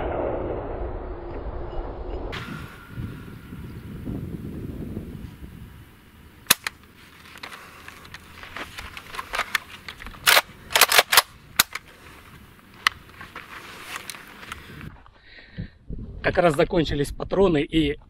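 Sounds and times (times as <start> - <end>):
rifle shots: 10.2 - 11.8.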